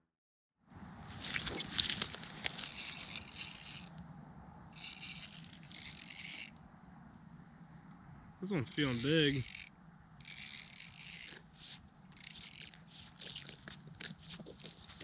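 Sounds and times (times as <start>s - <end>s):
fishing reel whirring: 2.6s - 4.0s, 4.7s - 6.6s, 8.7s - 12.8s
reel handling clicks: 4.8s - 6.6s, 9.0s - 11.4s, 12.2s - 12.8s.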